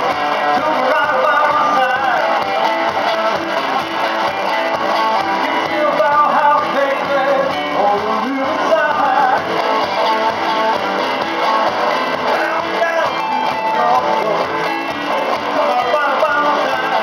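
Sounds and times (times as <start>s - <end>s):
bass guitar: 0.0s - 17.0s
electric guitar: 0.0s - 17.0s.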